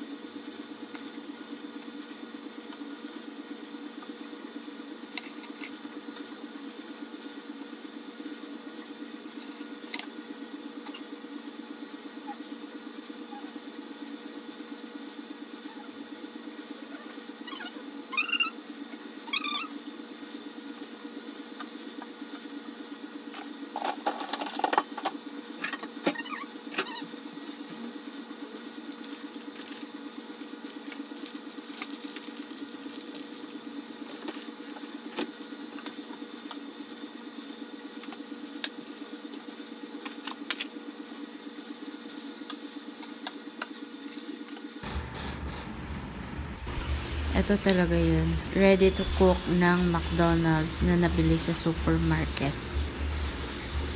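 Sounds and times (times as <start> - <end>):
constant low hum: 0.0 - 53.9.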